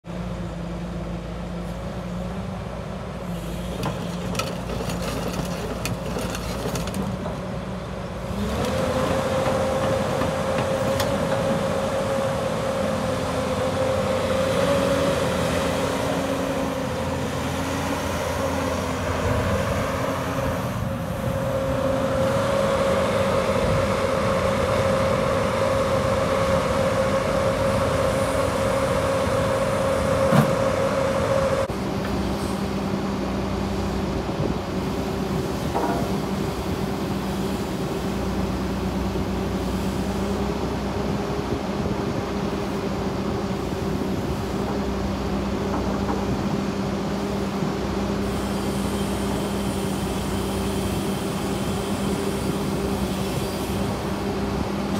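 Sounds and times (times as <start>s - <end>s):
excavator diesel engine running: 0.1s - 54.9s.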